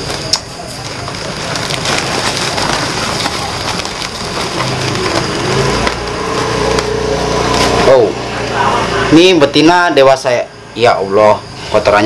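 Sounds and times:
plastic sack crackling: 0.0 - 8.4.

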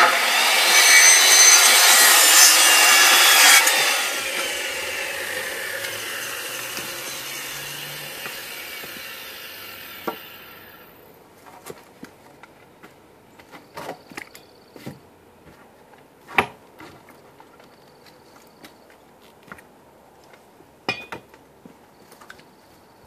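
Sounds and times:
power saw: 0.0 - 10.9.

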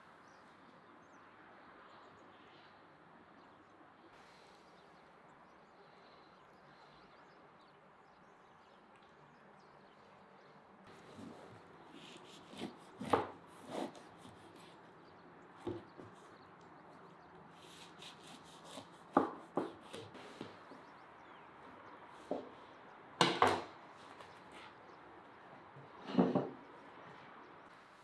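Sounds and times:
knife cutting crusty bread: 10.9 - 14.8.

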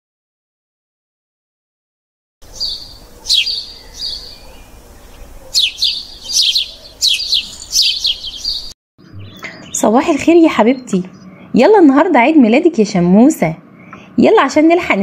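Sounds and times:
small birds chirping: 2.4 - 11.6.

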